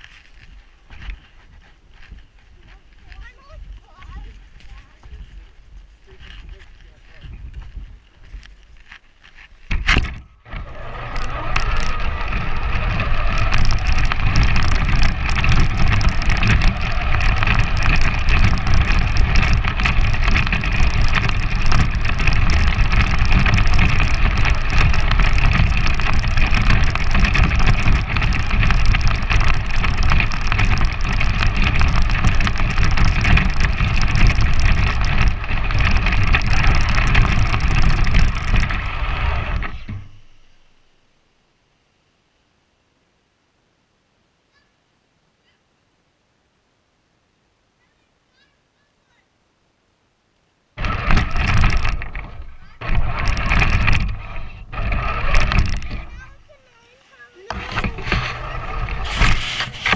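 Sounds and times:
tyres crunching on snow: 0.0 - 40.8, 50.8 - 59.9
chassis rattle: 9.7 - 40.7, 50.8 - 56.6, 57.4 - 59.9
rc truck motor whine: 10.0 - 40.9, 50.8 - 59.9.

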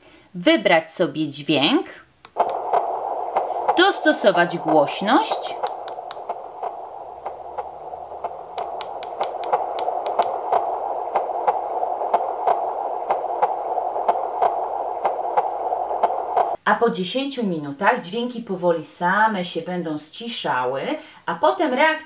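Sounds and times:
sharp clicks: 2.2 - 16.6
soothing whooshing noise: 2.3 - 16.6.

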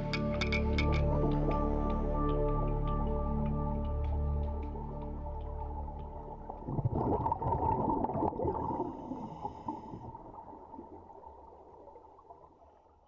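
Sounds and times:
underwater bubbling: 4.4 - 13.0.

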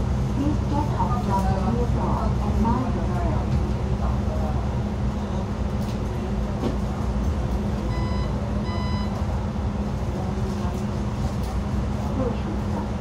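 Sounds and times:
bus engine hum and rumble: 0.0 - 13.0
short electronic beeps: 7.9 - 9.2.

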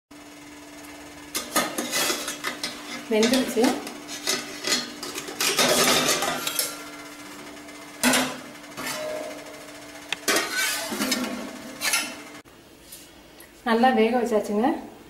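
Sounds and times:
steel plate clattering against pot: 4.2 - 6.8.

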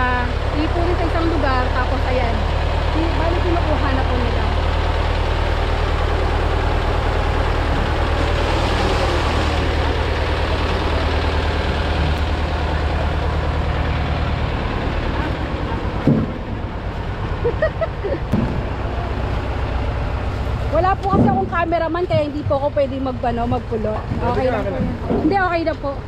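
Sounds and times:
vehicle engine running: 0.0 - 26.0.

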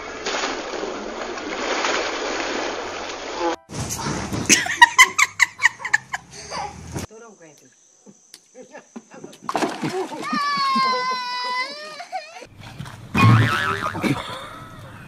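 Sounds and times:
water splashing: 0.0 - 5.4, 9.4 - 11.6
loud laughter: 4.5 - 6.8, 13.2 - 15.0.

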